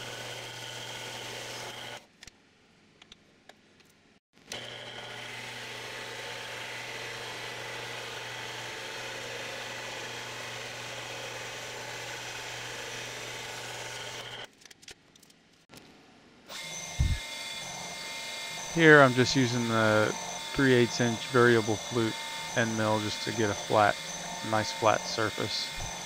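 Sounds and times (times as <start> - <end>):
bandsaw cutting metal: 0.0 - 2.0, 4.5 - 14.5, 16.5 - 26.0
machine running steadily: 16.9 - 17.3.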